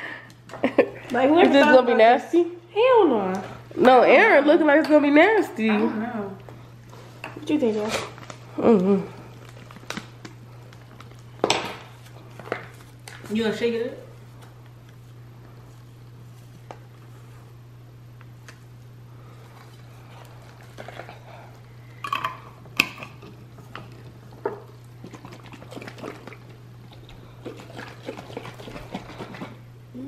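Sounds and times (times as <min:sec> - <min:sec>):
liquid sloshing in container: 0:24.6 - 0:29.6.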